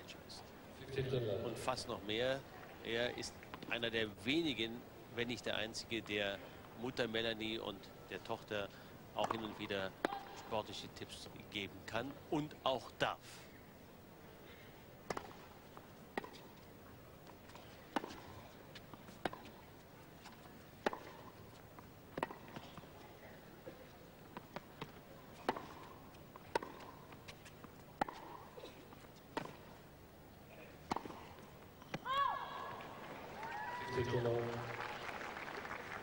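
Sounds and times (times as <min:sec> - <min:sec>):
tennis ball struck by rackets: 0:15.1 - 0:15.5, 0:16.1 - 0:16.5, 0:17.9 - 0:18.4, 0:19.2 - 0:19.6, 0:20.8 - 0:21.4, 0:22.1 - 0:22.8, 0:24.4 - 0:27.1, 0:28.0 - 0:28.5, 0:29.3 - 0:29.7, 0:30.8 - 0:32.1.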